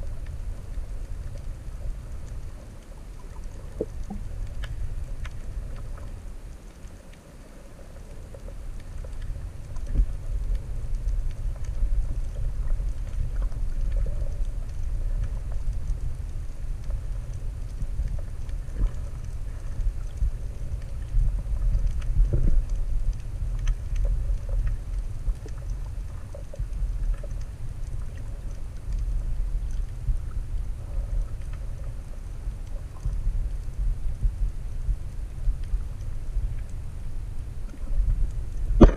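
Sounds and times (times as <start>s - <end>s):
underwater water rumble: 0.0s - 38.9s
faint clicks: 0.1s - 38.9s.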